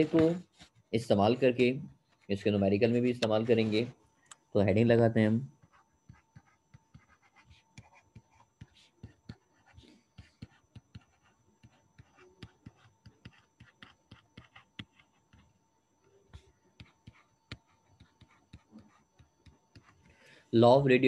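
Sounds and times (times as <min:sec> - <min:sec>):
stylus tapping and scratching: 0:01.9 - 0:04.4, 0:05.6 - 0:20.2.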